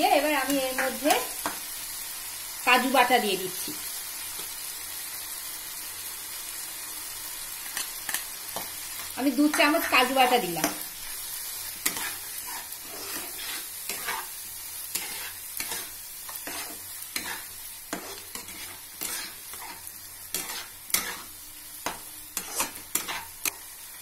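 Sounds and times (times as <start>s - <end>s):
frying sizzle: 0.0s - 24.0s
spatula scraping a pan: 7.7s - 23.7s.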